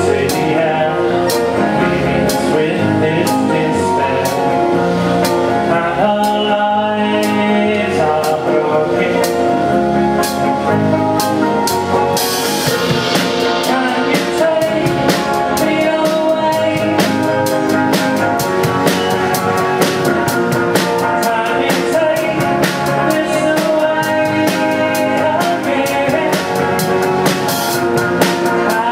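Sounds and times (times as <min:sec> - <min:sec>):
person singing: 0:00.0 - 0:10.6, 0:12.0 - 0:28.9
acoustic guitars: 0:00.0 - 0:28.9
bass guitar: 0:00.0 - 0:28.9
drum beat: 0:11.1 - 0:28.9.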